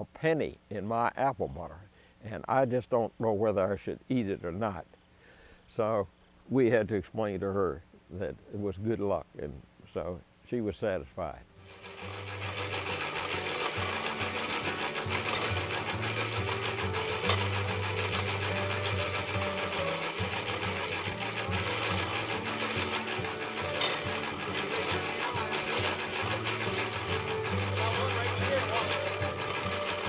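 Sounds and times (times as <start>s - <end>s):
apple grinder clattering: 11.6s - 30.0s.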